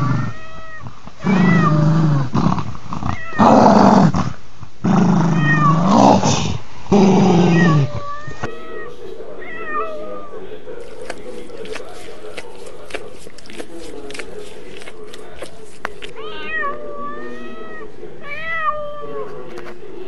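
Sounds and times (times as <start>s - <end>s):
cat yowling: 0.0s - 1.8s, 3.1s - 3.5s, 5.3s - 5.9s, 7.4s - 11.8s, 16.0s - 19.4s
dog growling: 0.0s - 8.7s.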